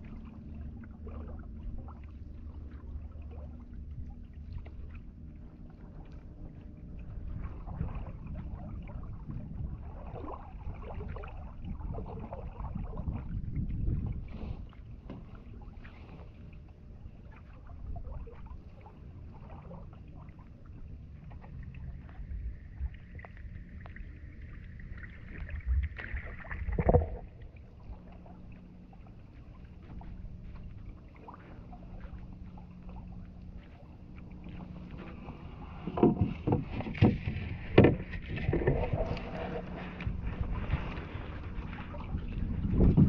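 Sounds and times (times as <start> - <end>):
paddle water sounds: 0.0 - 43.0
knocks on canoe hull: 35.8 - 39.0.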